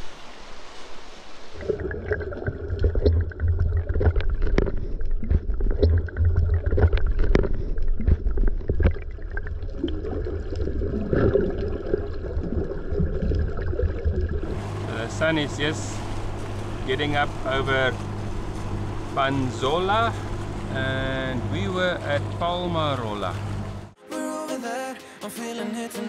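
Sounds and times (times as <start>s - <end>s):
steady hiss: 0.0s - 1.6s, 14.4s - 23.2s
muffled underwater rumble and gurgling: 1.6s - 23.9s
sharp underwater clicks: 2.2s - 14.4s.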